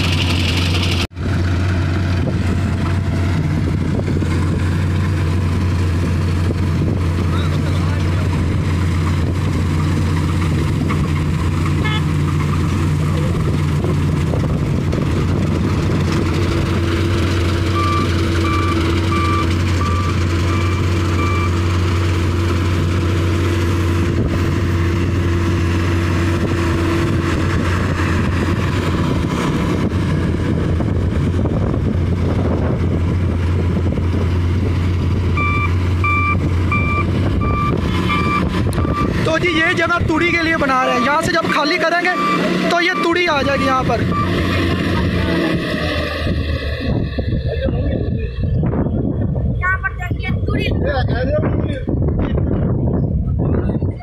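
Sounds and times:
combine harvester running: 0:00.0 - 0:50.7
beeping alarm: 0:17.8 - 0:21.6, 0:35.4 - 0:39.1, 0:40.8 - 0:44.4.

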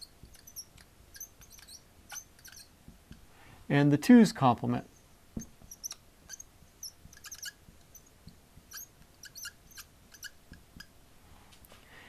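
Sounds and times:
marker squeaking on whiteboard: 0:00.0 - 0:03.2, 0:05.4 - 0:10.9.

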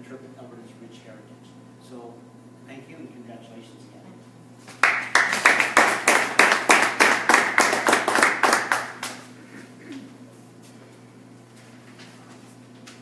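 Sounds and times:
audience applauding: 0:04.7 - 0:09.3
close evenly spaced claps: 0:04.7 - 0:09.3.

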